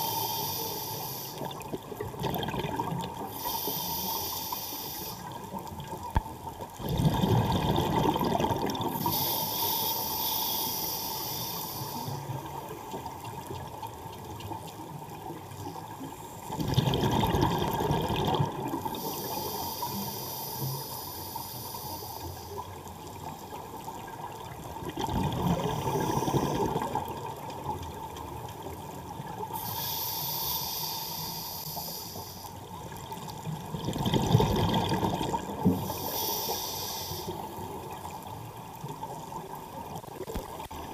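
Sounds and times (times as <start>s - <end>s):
regulator inhalation hiss: 0.0s - 1.5s, 3.2s - 5.4s, 9.0s - 12.4s, 18.8s - 22.7s, 29.5s - 32.7s, 35.7s - 37.8s
exhaled bubbles rushing underwater: 1.4s - 3.3s, 5.4s - 9.1s, 16.5s - 19.3s, 23.0s - 29.5s, 32.8s - 36.1s.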